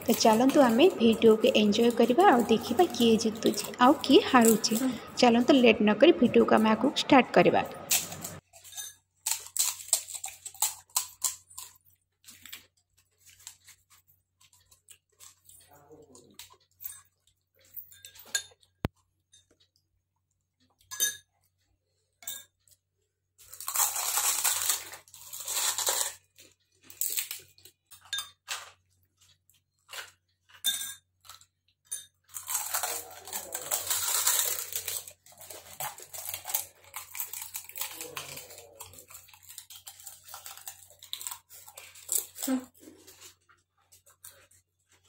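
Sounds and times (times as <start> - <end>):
crunching and chewing: 0.0 - 5.2, 7.8 - 19.8, 20.5 - 45.0
crisp shells cracking: 9.2 - 12.6, 23.4 - 27.7, 32.3 - 43.3
plastic spoon clinking on glass bowls: 27.9 - 28.4, 30.5 - 31.0.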